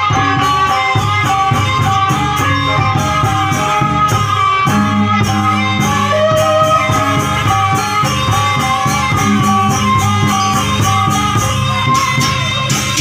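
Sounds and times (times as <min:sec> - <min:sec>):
bamboo flute melody: 0:00.0 - 0:13.0
percussion beat: 0:00.0 - 0:13.0.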